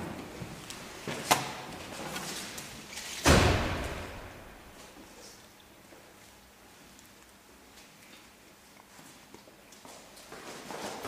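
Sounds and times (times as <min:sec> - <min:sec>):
car door slamming shut: 0:03.2 - 0:04.4.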